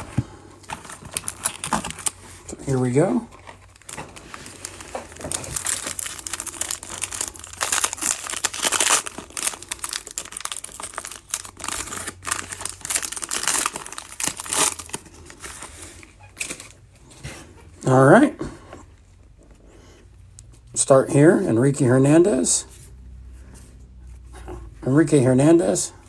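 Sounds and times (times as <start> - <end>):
foil wrapper crinkling and tearing: 0.7 - 2.2, 3.5 - 16.8.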